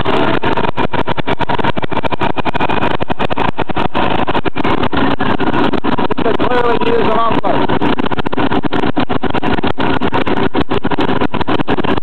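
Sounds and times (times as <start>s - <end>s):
diesel engine clattering: 0.0s - 12.0s.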